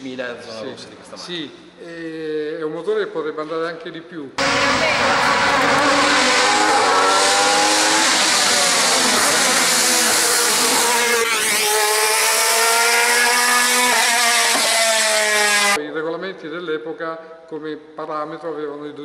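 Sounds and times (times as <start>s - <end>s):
race car engine screaming: 4.4s - 15.8s.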